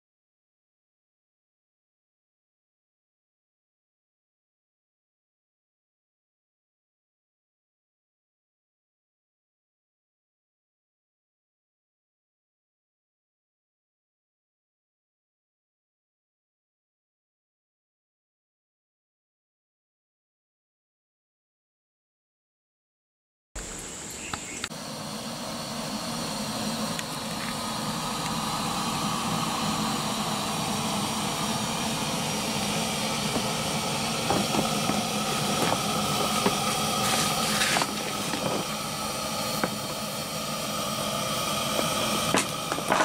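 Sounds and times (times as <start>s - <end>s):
pressure lamp hissing: 23.6s - 43.0s.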